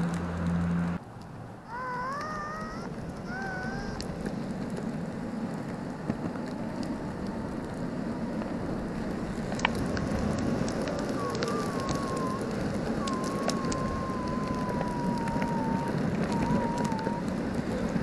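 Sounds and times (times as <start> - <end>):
skateboard rolling on asphalt: 0.0 - 18.0
small clicks: 1.2 - 4.9, 9.4 - 18.0.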